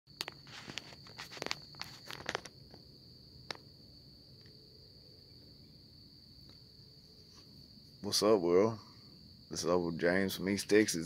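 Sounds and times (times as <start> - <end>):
sharp clicks and rustles: 0.1 - 2.8
crickets chirring: 0.1 - 11.0.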